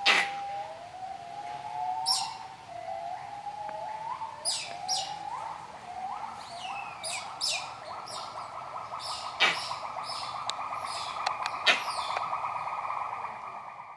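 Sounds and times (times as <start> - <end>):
small bird chirping: 2.1 - 2.4, 4.4 - 12.8
sharp clicks: 9.4 - 12.4.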